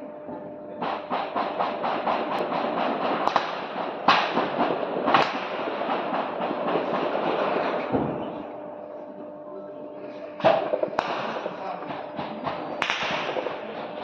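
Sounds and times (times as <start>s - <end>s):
automatic gunfire: 0.9s - 8.4s, 10.4s - 14.0s.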